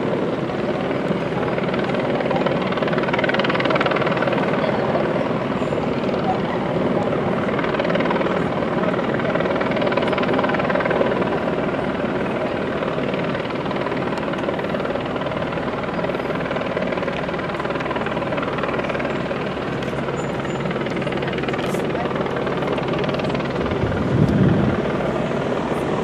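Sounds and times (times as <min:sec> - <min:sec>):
loud mechanical drone: 0:19.5 - 0:26.0.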